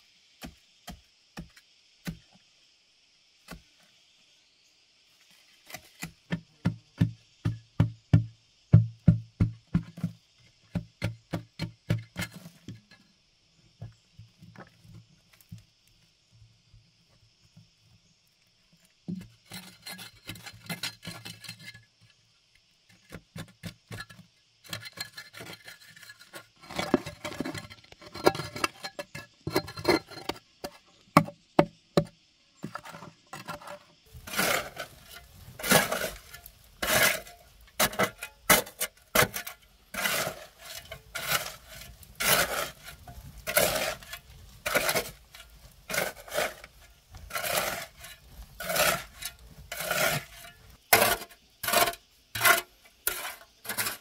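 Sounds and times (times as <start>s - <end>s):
spade scraping earth and stones: 5.2s - 6.4s, 10.7s - 13.2s, 19.1s - 22.2s, 22.9s - 31.4s, 32.0s - 54.0s.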